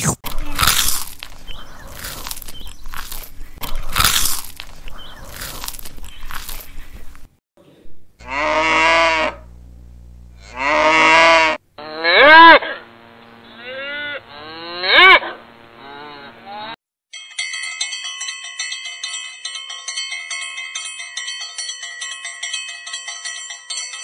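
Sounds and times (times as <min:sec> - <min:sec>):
cow mooing: 0:08.2 - 0:09.5, 0:10.3 - 0:16.8.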